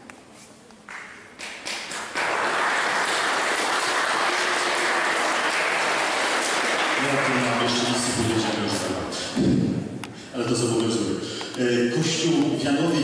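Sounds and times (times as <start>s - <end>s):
audience applause: 1.4s - 9.0s.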